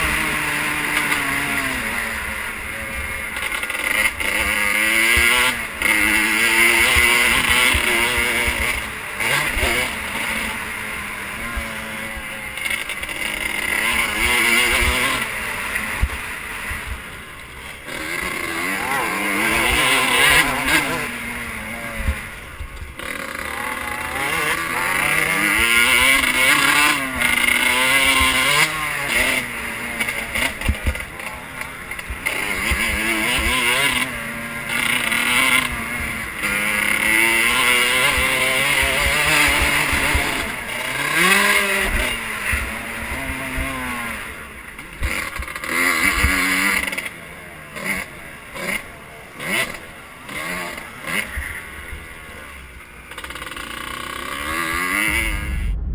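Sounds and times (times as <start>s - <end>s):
motocross bike engine revving: 0.0s - 55.9s
wind buffeting microphone: 55.1s - 55.9s.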